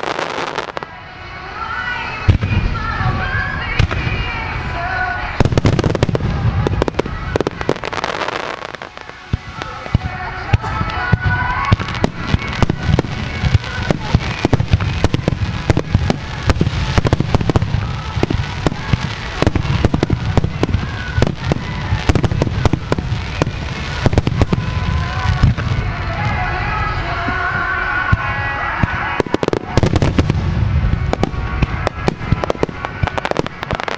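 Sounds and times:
fireworks bangs and crackles: 0.0 - 33.9
low rumble: 0.8 - 7.8, 9.3 - 33.6.

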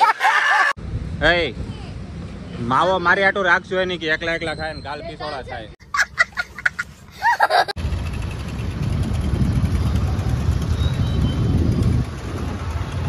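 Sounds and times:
child laughing squeals: 0.0 - 0.8, 5.8 - 7.8
low rumble of street traffic: 0.8 - 13.0.

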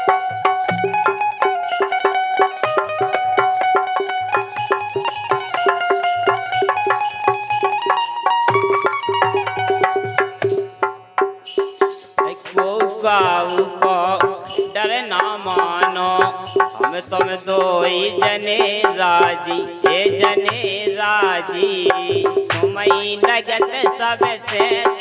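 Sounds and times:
hand drum strokes: 0.0 - 25.0
man singing: 12.2 - 25.0.

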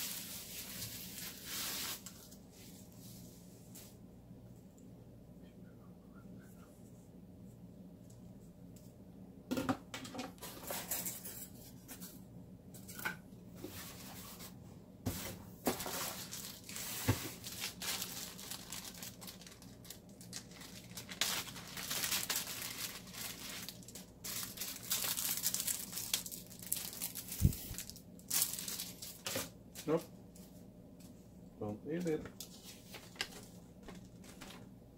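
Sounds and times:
packaging crinkling and rustling: 0.0 - 2.4, 15.7 - 30.0, 32.3 - 34.7.

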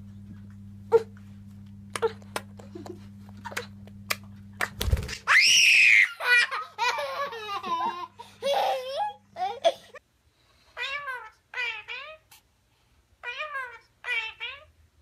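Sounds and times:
boy squealing: 5.3 - 6.4
boy laughing: 5.9 - 10.0.

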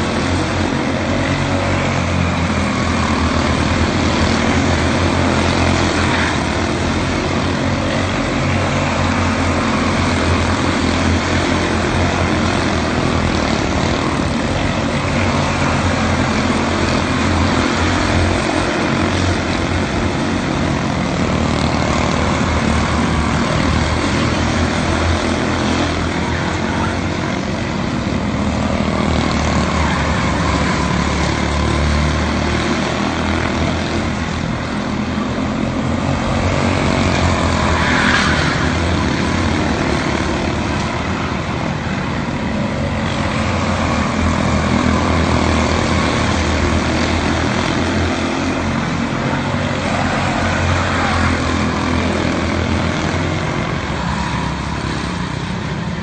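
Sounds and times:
race car engines droning: 0.0 - 56.0
rising engine whine: 0.0 - 56.0.

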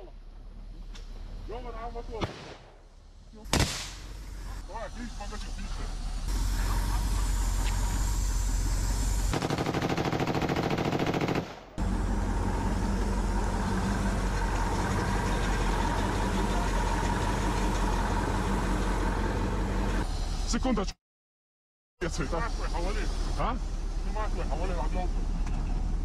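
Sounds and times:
truck engine running: 2.9 - 20.6, 22.0 - 26.0.

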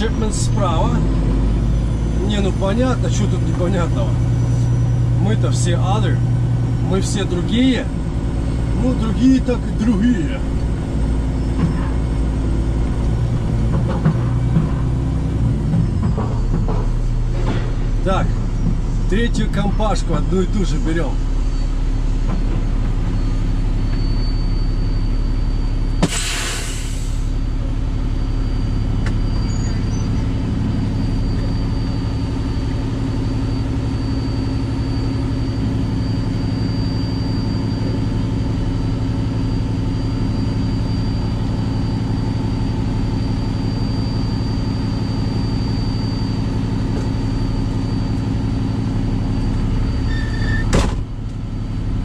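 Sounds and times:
diesel truck engine running: 0.0 - 52.0
short hiss: 26.0 - 27.3.

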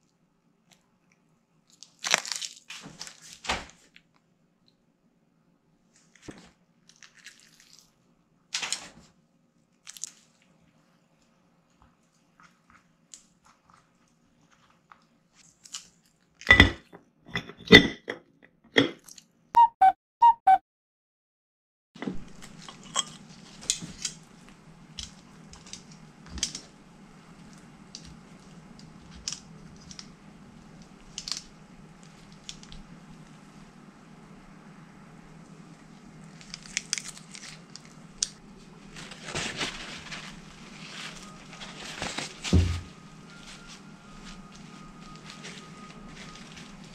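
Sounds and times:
cling film crinkling: 1.7 - 4.0, 9.8 - 10.6, 36.0 - 46.9
paper towel rustling: 2.7 - 3.9, 37.2 - 46.9.

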